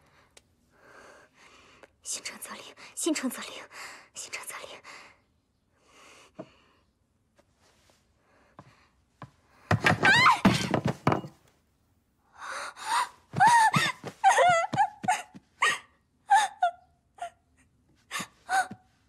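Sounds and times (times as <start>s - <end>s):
body thud on wooden floor: 9.7s - 11.4s
woman gasping and whimpering: 12.4s - 17.4s, 18.0s - 18.9s.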